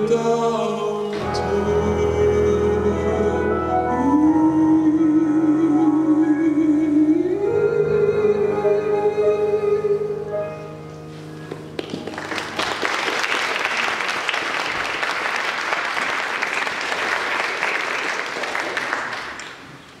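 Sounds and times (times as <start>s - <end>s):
small audience applauding: 11.5s - 19.9s.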